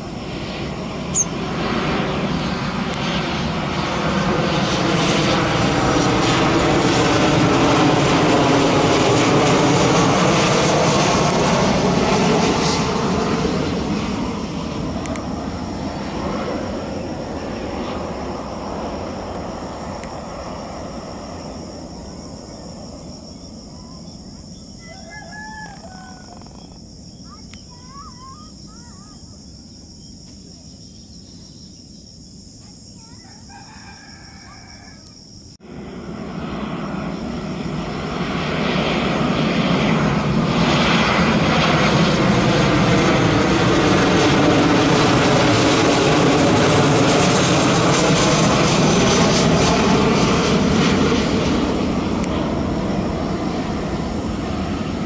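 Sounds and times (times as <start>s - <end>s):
jet airliner passing overhead: 0.0s - 55.0s
rooster crowing: 24.8s - 26.7s, 33.0s - 35.3s.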